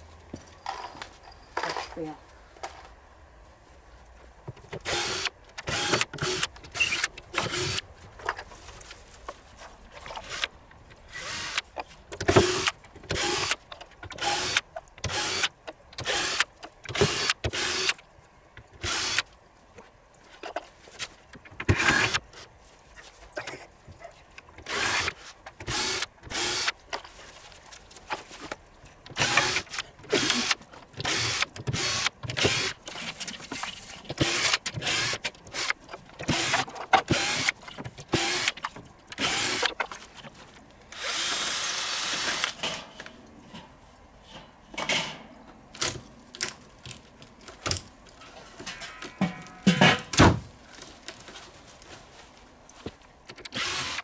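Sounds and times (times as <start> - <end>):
cordless drill bursts: 4.8 - 7.8, 14.2 - 18.0, 18.8 - 19.2, 25.7 - 26.7, 29.2 - 32.8, 34.2 - 38.6, 39.2 - 39.7, 41.0 - 42.6, 53.5 - 54.0.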